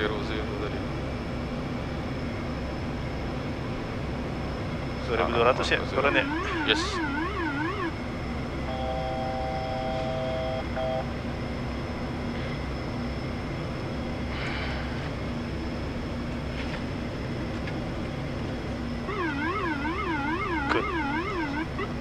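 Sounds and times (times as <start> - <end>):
turboprop engine and airflow noise: 0.0 - 22.0
multi-pitched tone: 6.1 - 8.0, 19.1 - 22.0.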